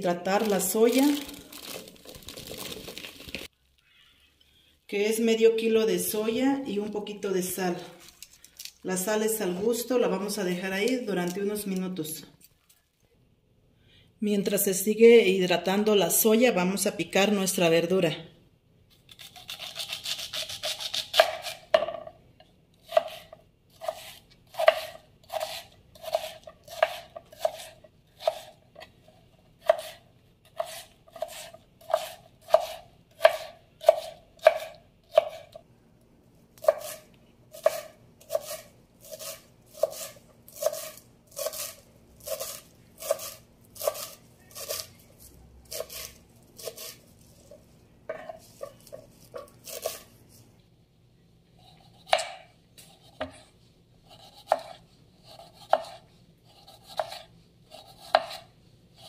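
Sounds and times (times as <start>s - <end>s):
knife chopping on wooden board: 20.6s - 22.0s, 22.9s - 28.5s, 29.6s - 30.0s, 30.6s - 35.5s, 36.6s - 37.0s, 37.6s - 41.7s, 51.9s - 53.4s, 54.1s - 56.0s, 56.6s - 58.4s.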